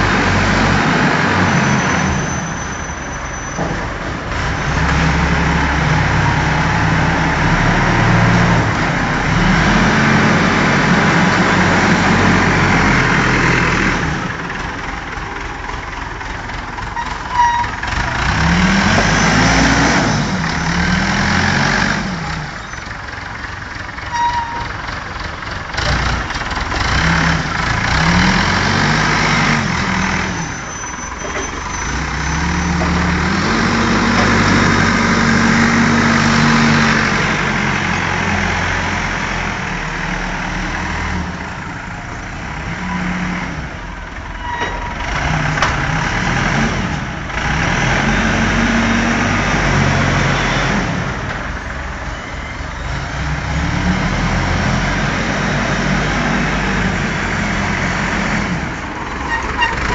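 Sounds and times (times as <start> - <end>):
forklift engine revving: 0.0 - 59.9.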